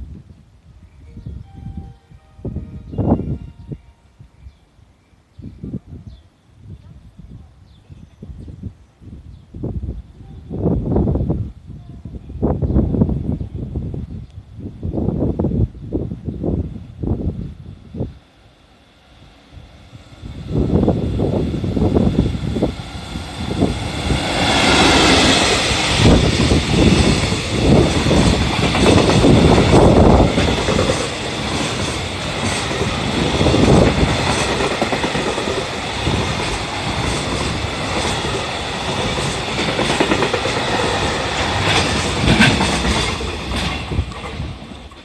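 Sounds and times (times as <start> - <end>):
electric locomotive passing: 16.4 - 45.0.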